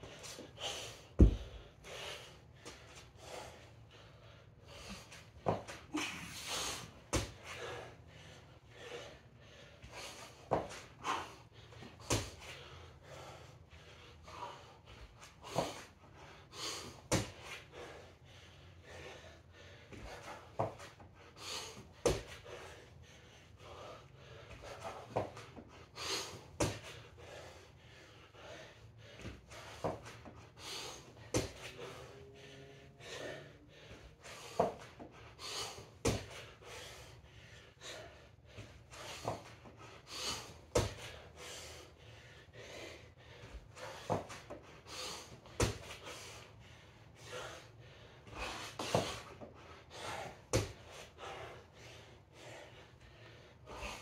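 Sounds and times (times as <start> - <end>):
man breathing hard: 0.0 - 54.0
soft thuds: 1.2 - 1.5.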